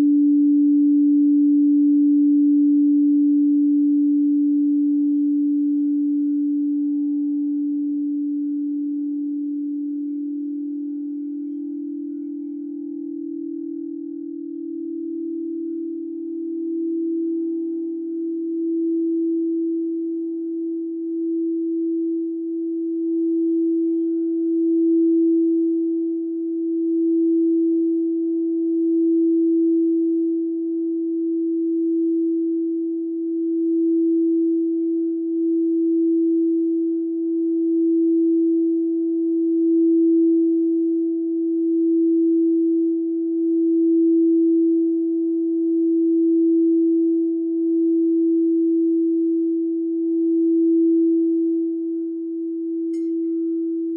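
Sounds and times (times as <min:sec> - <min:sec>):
singing bowl steady tone: 0:00.0 - 0:53.9.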